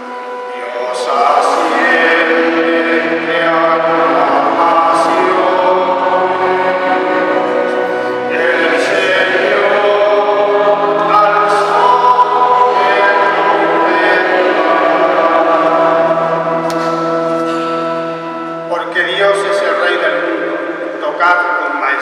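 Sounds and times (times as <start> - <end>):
man singing psalm: 0.4 - 16.6.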